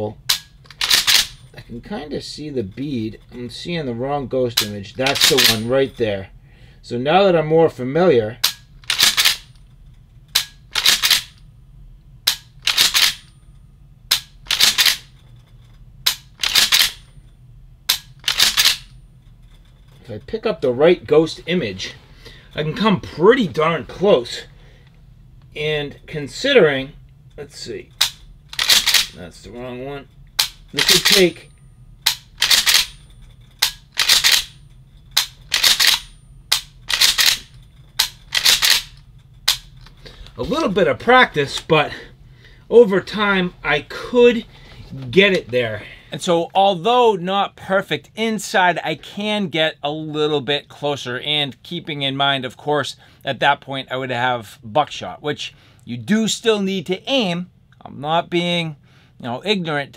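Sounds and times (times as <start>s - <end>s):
shotgun action clicking and clacking: 0.3s - 1.4s, 4.6s - 5.7s, 8.4s - 9.5s, 10.4s - 11.3s, 12.3s - 13.2s, 14.1s - 15.1s, 16.1s - 17.0s, 17.9s - 18.9s, 28.0s - 29.2s, 30.4s - 31.4s, 32.0s - 34.6s, 35.2s - 39.7s.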